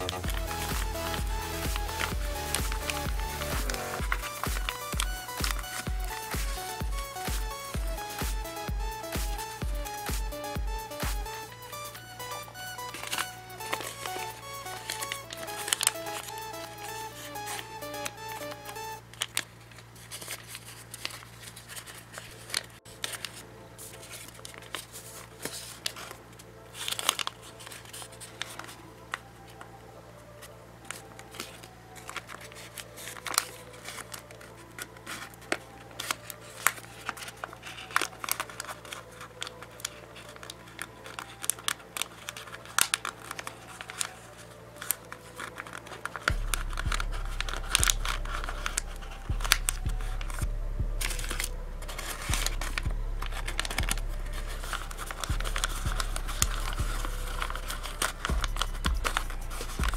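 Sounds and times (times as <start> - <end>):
faint low hum: 0.0 - 59.9
paper rustling and crinkling: 12.9 - 29.7, 30.4 - 50.4, 51.0 - 59.9.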